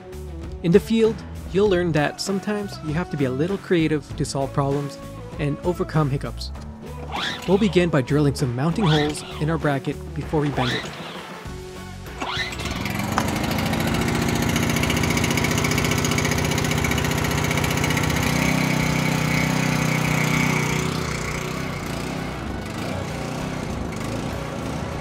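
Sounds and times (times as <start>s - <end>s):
power drill boring through metal: 7.0s - 7.8s, 12.1s - 24.9s.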